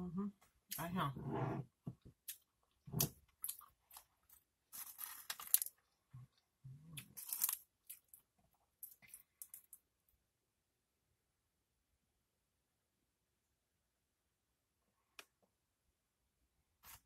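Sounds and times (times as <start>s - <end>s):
tortilla chips crunching: 3.3s - 5.9s, 7.0s - 9.8s.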